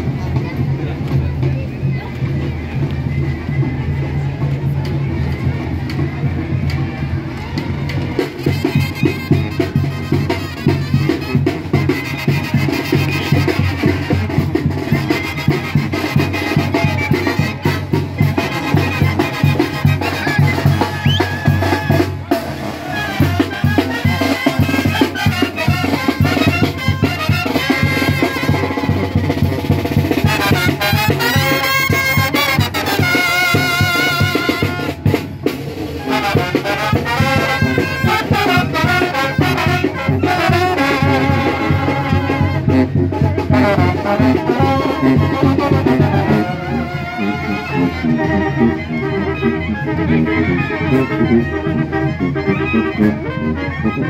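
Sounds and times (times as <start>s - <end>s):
steady drum beat: 7.6s - 46.9s
trumpets and trombones playing: 8.2s - 54.0s.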